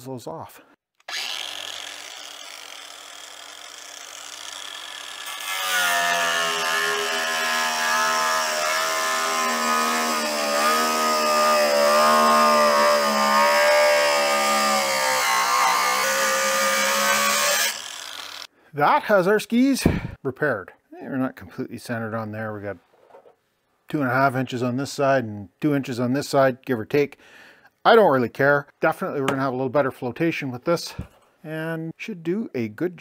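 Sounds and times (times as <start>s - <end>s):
angle grinder whining: 1.0s - 18.5s
grinder disc cutting plastic: 1.0s - 18.5s.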